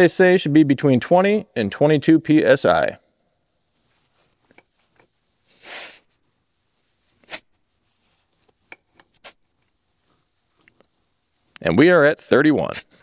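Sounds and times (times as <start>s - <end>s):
air hissing from tire valve: 5.4s - 6.2s.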